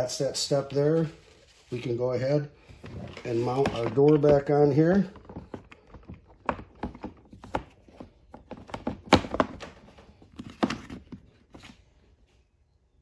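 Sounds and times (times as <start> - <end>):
plastic cover clicking and knocking: 3.6 - 11.2.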